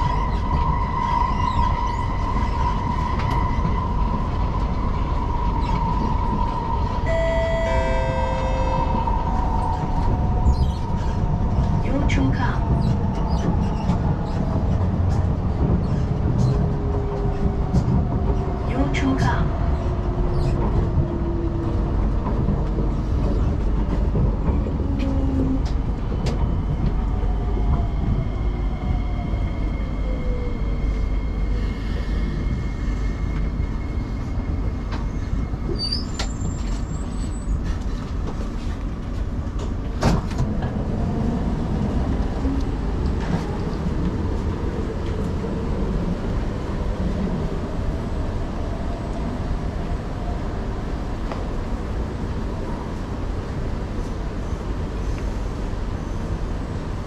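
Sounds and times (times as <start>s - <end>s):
low train rumble: 0.0s - 57.0s
metro train braking: 5.5s - 11.2s
train motor whine: 7.0s - 9.2s
short high tones: 7.1s - 9.1s.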